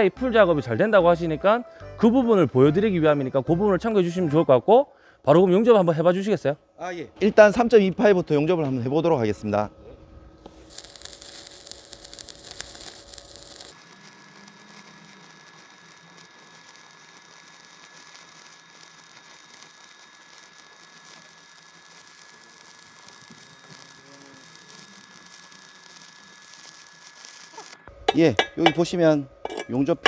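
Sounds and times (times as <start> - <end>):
welding arc crackling: 10.5 - 30.0.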